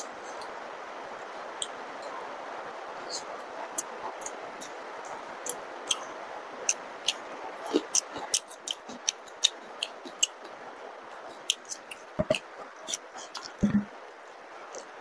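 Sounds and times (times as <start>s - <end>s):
wet chewing mouth clicks: 6.7s - 10.5s.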